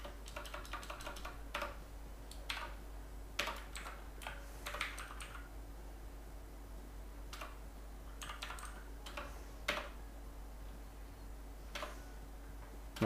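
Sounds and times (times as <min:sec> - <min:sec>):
typing on computer keyboard: 0:00.0 - 0:02.8, 0:03.4 - 0:05.5, 0:07.3 - 0:07.6, 0:08.2 - 0:09.9, 0:11.7 - 0:12.0
faint low hum: 0:00.0 - 0:13.0.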